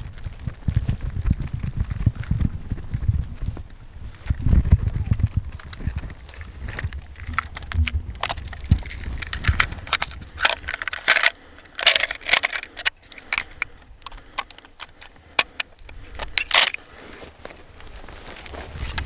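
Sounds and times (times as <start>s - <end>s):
cartridges clicking into magazine: 7.2s - 16.8s.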